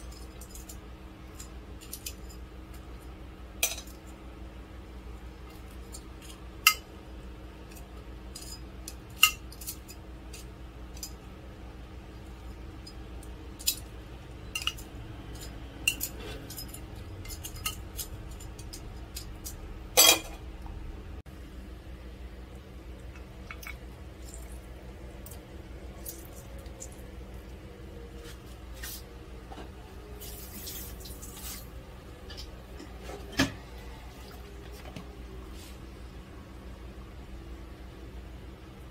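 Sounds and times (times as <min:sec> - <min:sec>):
low steady hum: 0:00.0 - 0:38.9
metal tongs clinking on plates: 0:00.1 - 0:02.4, 0:03.6 - 0:04.0, 0:07.7 - 0:11.2, 0:12.8 - 0:20.4.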